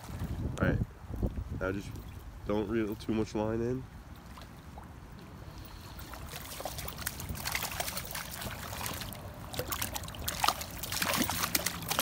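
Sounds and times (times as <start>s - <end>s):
fish splashing in water: 5.6s - 12.0s.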